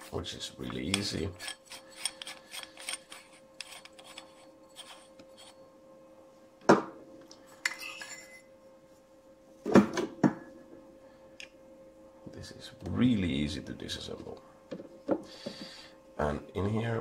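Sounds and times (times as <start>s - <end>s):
light metallic clicks and scrapes: 0.9s - 5.6s.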